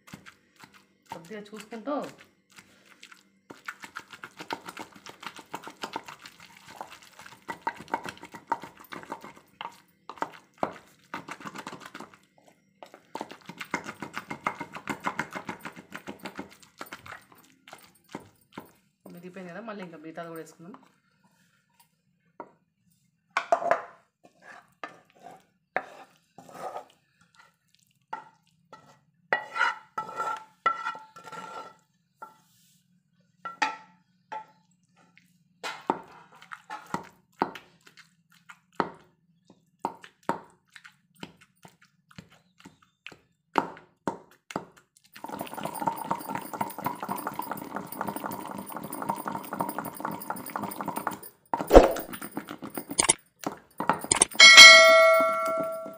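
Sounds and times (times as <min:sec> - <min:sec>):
pestle pounding in stone mortar: 0:03.5 - 0:12.2, 0:13.1 - 0:17.2, 0:43.6 - 0:55.9.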